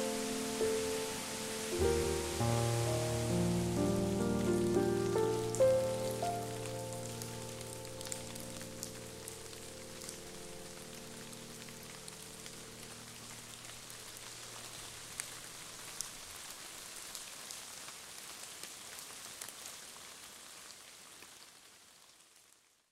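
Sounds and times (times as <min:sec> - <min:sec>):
steady rain hiss: 0:00.0 - 0:22.9.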